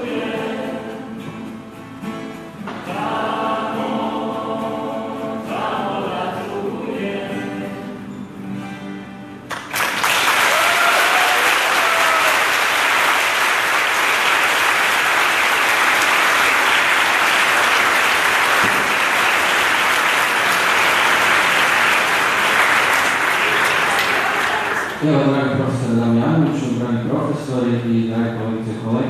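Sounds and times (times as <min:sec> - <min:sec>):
large audience applauding: 0:09.5 - 0:25.3
brief cheers: 0:10.2 - 0:12.7.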